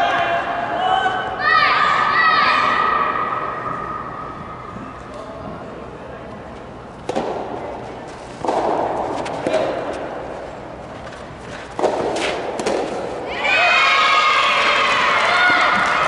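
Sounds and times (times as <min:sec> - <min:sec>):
crowd noise: 0:00.0 - 0:16.0
rackets hitting ball: 0:07.0 - 0:13.3.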